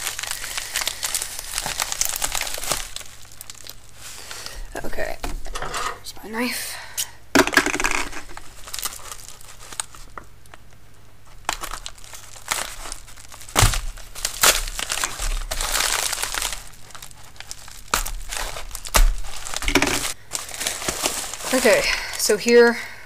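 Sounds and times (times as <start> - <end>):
plastic mailer crinkling: 0.0 - 4.4, 7.5 - 22.6
knife cutting plastic: 11.4 - 21.8.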